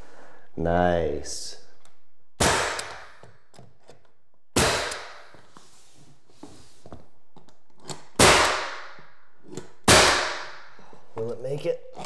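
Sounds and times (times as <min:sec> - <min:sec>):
nail gun firing: 0:02.4 - 0:03.2, 0:04.6 - 0:05.3, 0:08.2 - 0:09.0, 0:09.8 - 0:10.6.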